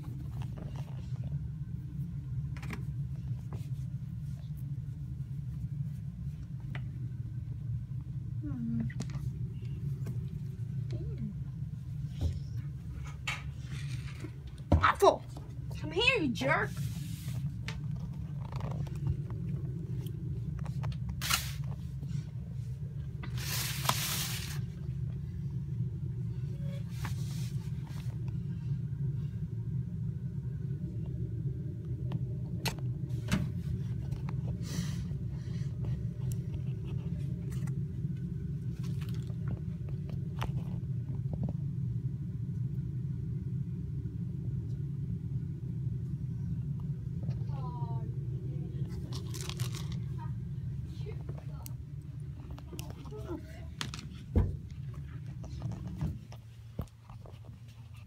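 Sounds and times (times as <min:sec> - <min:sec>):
steady low rumble: 0:00.0 - 0:58.0
cat crunching grass: 0:36.2 - 0:40.6, 0:48.8 - 0:50.2.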